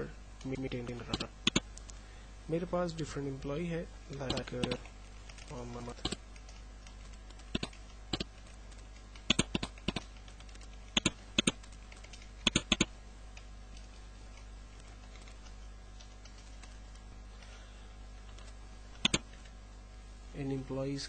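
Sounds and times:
keyboard keys clicking: 0:07.3 - 0:12.9.

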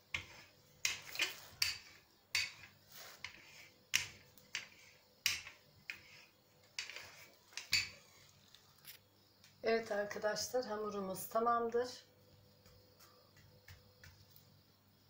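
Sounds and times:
rolling pin clacking on stone: 0:00.1 - 0:08.0.

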